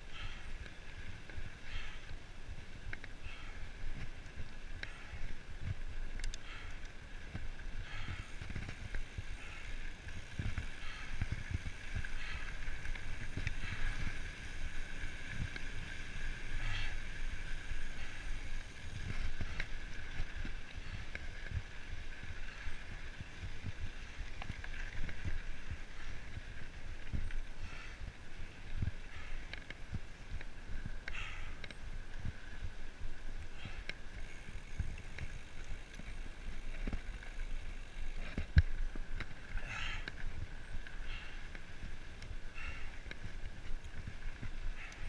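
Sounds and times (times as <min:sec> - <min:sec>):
bike tyres whirring on dirt: 0:00.0 - 0:45.0
bike knocking and rattling: 0:00.1 - 0:45.0.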